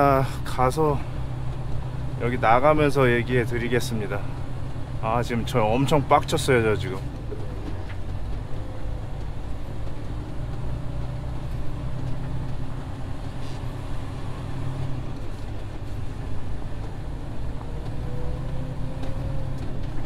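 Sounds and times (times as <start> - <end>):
diesel truck engine drone: 0.0 - 20.0.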